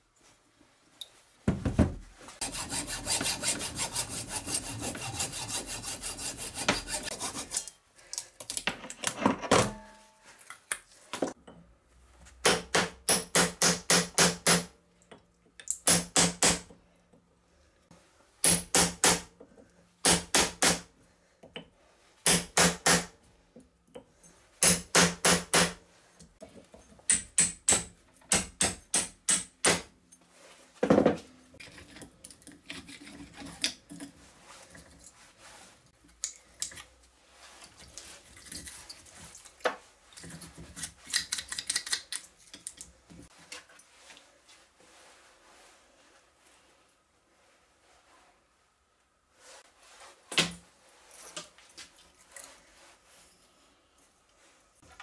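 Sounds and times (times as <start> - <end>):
rasping metal scraping: 2.4 - 7.8.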